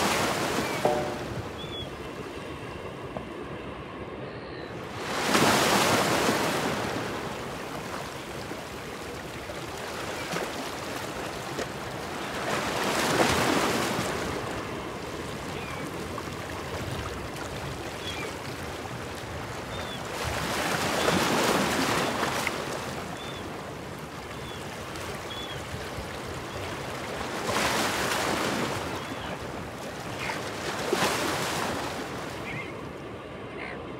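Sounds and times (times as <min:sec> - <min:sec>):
ocean surf washing: 0:00.0 - 0:33.9
faint bird chirps: 0:00.6 - 0:02.0.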